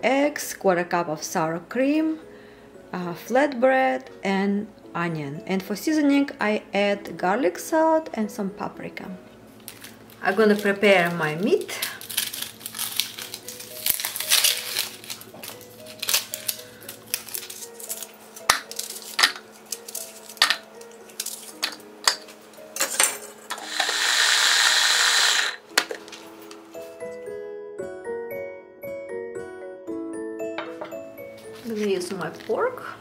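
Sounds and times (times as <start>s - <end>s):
soft background music: 0.0s - 33.0s
electric mini chopper running: 23.5s - 25.6s.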